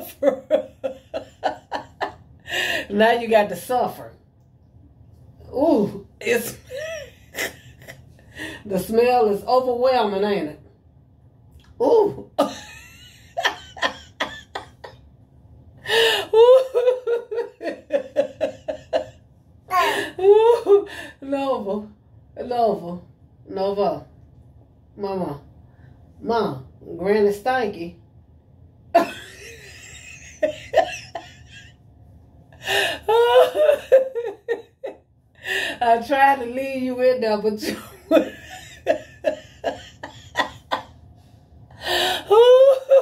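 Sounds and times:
woman laughing: 0:00.0 - 0:03.0, 0:06.3 - 0:08.6, 0:11.9 - 0:15.0, 0:15.9 - 0:21.0, 0:29.0 - 0:31.7, 0:32.6 - 0:35.7, 0:37.6 - 0:40.9, 0:41.8 - 0:43.0.

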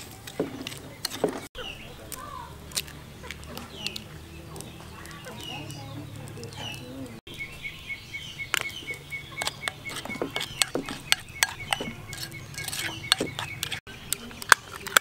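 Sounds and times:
bird chirping rapidly: 0:00.8 - 0:14.4
spoon clinking in ceramic bowl: 0:09.4 - 0:13.8.

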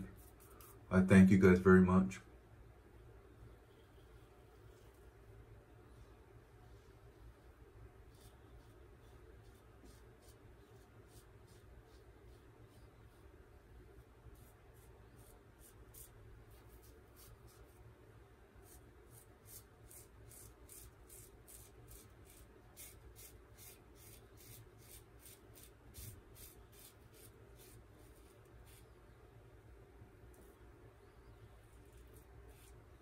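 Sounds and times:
razor scraping stubble: 0:14.4 - 0:17.7, 0:18.6 - 0:28.9, 0:31.2 - 0:33.0.

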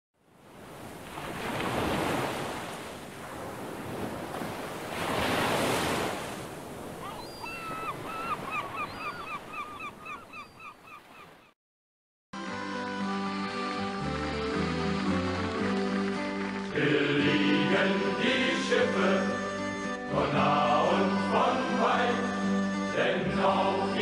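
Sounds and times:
surf washing in: 0:00.3 - 0:09.0
music: 0:12.4 - 0:24.0.

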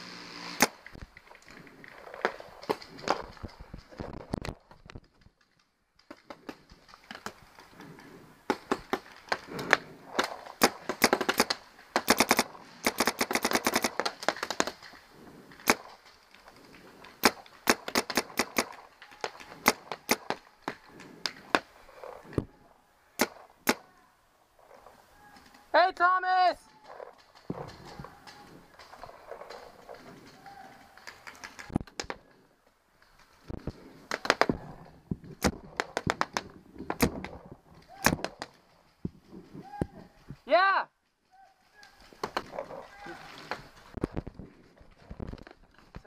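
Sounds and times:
paintball markers firing: 0:00.4 - 0:01.0, 0:08.5 - 0:14.9, 0:17.1 - 0:21.7, 0:23.2 - 0:23.8, 0:35.4 - 0:38.6.

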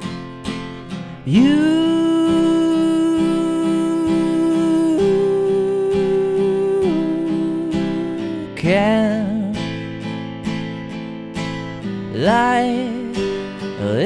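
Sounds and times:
strummed acoustic guitar: 0:00.0 - 0:14.0
man singing long notes: 0:01.2 - 0:09.6.

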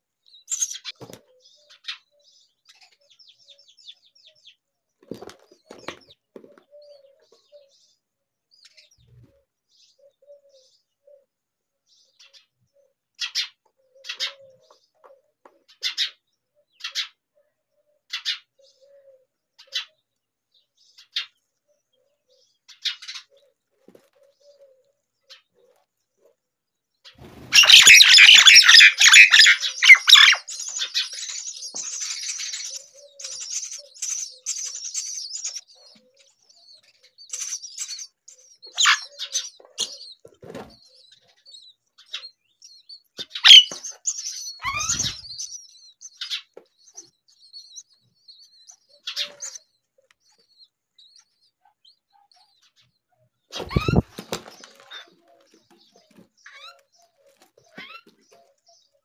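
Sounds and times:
bird chirps and calls: 0:00.2 - 0:04.6, 0:12.0 - 0:15.1, 0:27.1 - 0:59.0
nestlings chattering: 0:27.4 - 0:40.2, 0:42.0 - 0:49.6, 0:53.5 - 0:57.0.

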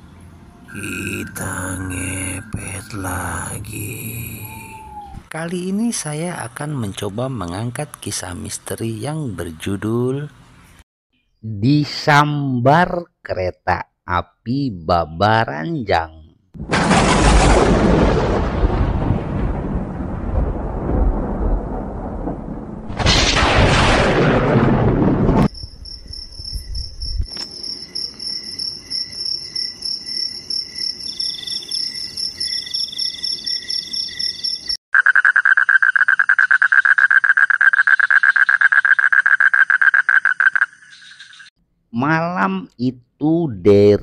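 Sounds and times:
thunder rumble: 0:16.6 - 0:27.3
crickets chirping: 0:25.5 - 0:41.5
rapidly pulsing frog croak: 0:29.8 - 0:41.5.

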